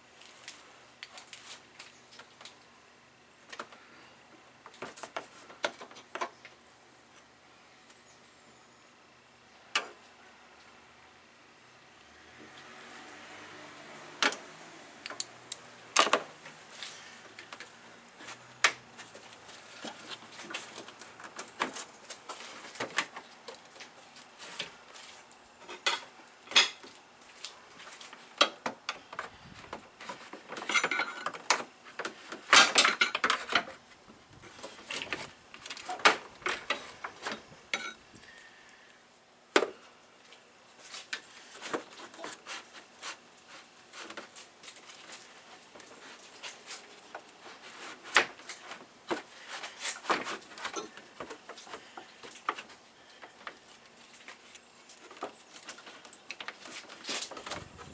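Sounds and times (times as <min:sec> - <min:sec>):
plastic and metal parts clattering: 0:28.0 - 0:33.8, 0:45.9 - 0:57.9.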